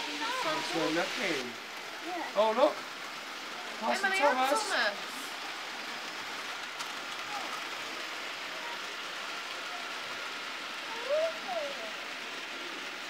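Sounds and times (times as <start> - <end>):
faint motor whine: 0.0 - 13.0
model train wheels hissing on track: 0.0 - 13.0.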